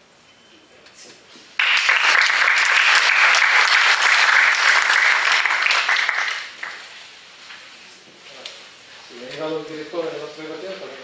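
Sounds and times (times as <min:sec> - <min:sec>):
audience applauding: 0:01.6 - 0:07.0.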